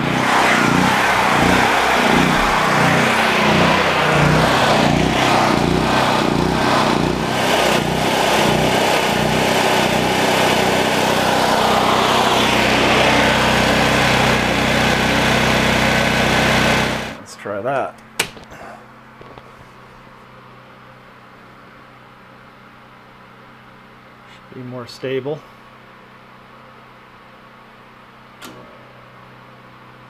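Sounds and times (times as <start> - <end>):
portable generator engine running: 0.0 - 17.2.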